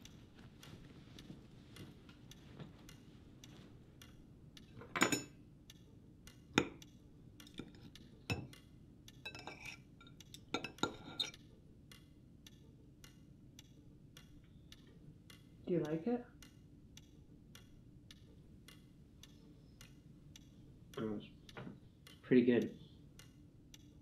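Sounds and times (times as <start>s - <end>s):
clock ticking: 0.0s - 9.4s, 10.0s - 24.0s
cutlery scraping a ceramic plate: 9.3s - 11.4s.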